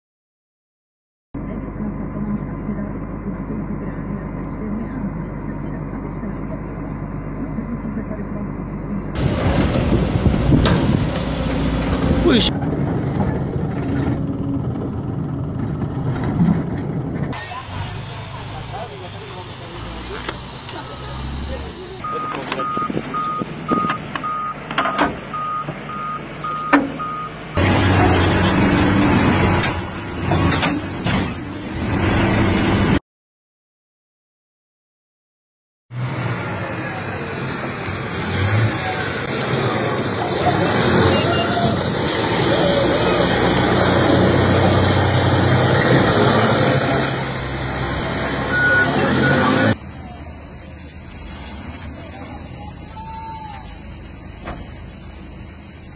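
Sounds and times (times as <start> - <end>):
diesel engine running: 1.4 - 33.0, 35.9 - 55.9
reversing alarm beeps: 22.0 - 27.4, 48.5 - 49.8
short high beeps: 48.5 - 49.7.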